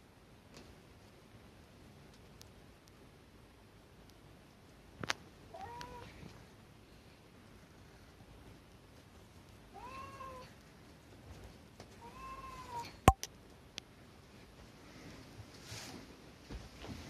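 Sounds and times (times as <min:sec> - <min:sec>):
cat meowing: 0:05.5 - 0:06.1, 0:09.7 - 0:10.5, 0:12.0 - 0:13.0.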